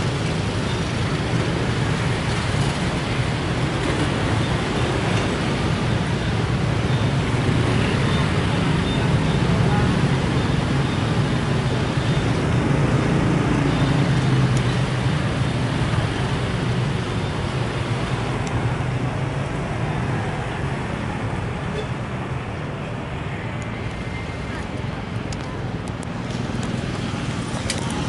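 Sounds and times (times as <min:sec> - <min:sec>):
train rumbling: 0:00.0 - 0:17.0
diesel engine drone: 0:00.0 - 0:28.0.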